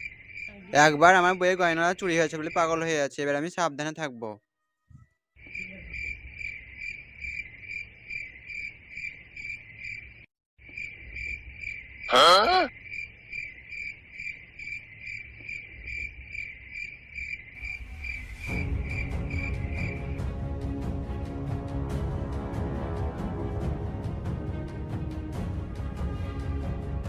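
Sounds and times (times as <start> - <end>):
crickets chirping: 0.0 - 4.0, 5.4 - 20.7
music: 17.8 - 27.0.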